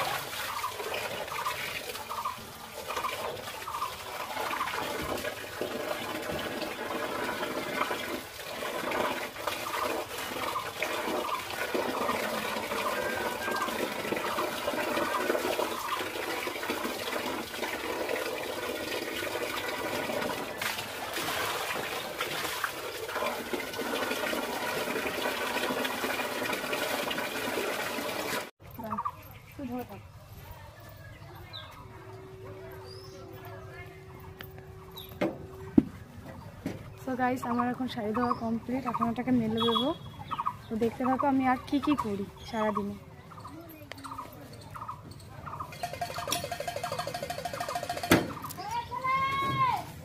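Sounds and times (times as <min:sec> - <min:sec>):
water pouring into metal basin: 0:00.0 - 0:28.5, 0:45.7 - 0:48.2
water splashing and sloshing: 0:00.0 - 0:28.7.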